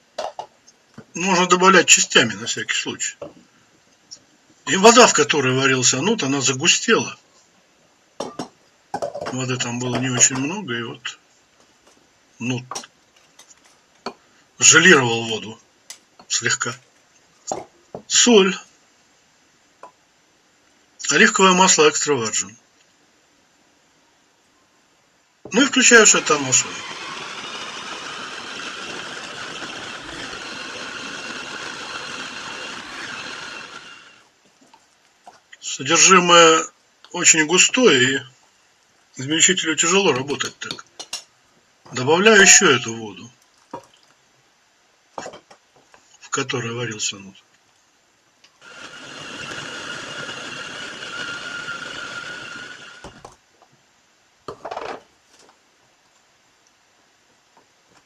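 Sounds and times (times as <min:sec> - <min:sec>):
food chopper motor labouring: 0:25.5 - 0:34.2, 0:48.6 - 0:53.3.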